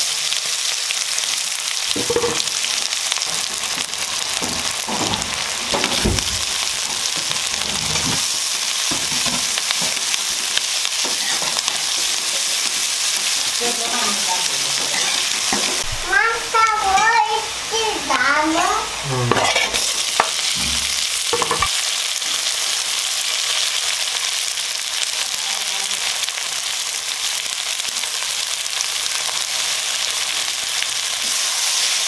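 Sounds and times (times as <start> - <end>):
onions sizzling in oil: 0.0 - 32.0
metal spatula scraping pan: 7.4 - 8.4, 13.8 - 15.8, 19.2 - 21.7.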